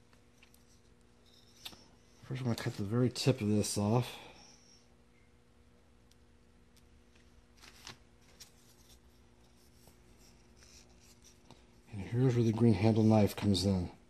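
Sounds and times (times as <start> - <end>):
rustling over newspaper: 7.5 - 12.0.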